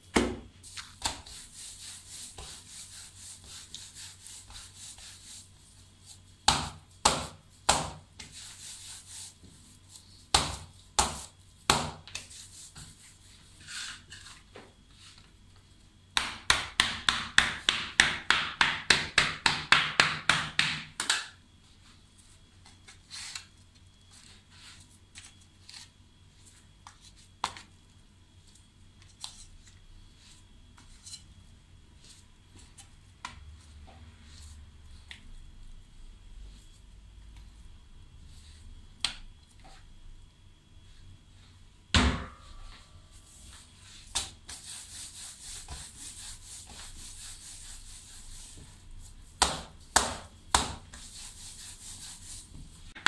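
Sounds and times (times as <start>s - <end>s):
dough scraper chopping on marble: 6.4s - 8.8s, 10.3s - 12.4s, 16.2s - 21.3s, 49.3s - 52.0s.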